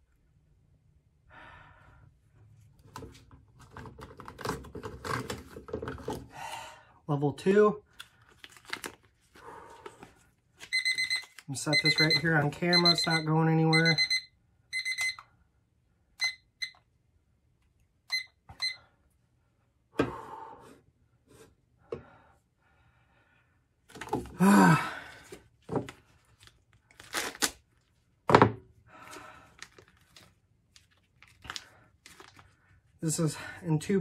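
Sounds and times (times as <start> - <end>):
plastic packet crinkling and tearing: 7.9 - 9.4, 10.6 - 11.5, 25.9 - 28.0, 29.5 - 32.7
short electronic beeps: 10.7 - 15.2.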